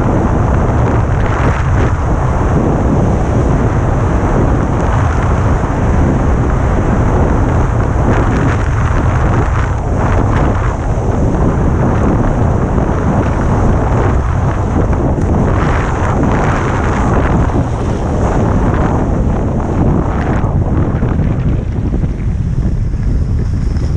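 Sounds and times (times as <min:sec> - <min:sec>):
wind rumbling on microphone: 0:00.0 - 0:23.9
skis scraping on hard snow: 0:07.8 - 0:23.9.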